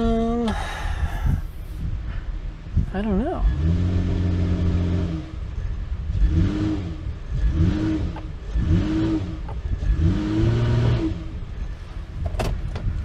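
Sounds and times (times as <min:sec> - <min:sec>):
truck engine revving: 0:03.3 - 0:11.7.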